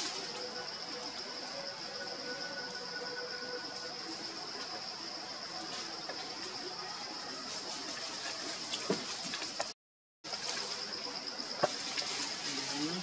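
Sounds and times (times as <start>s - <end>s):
high insect drone: 0.0s - 9.7s, 10.3s - 13.0s
soft hiss: 10.3s - 13.0s.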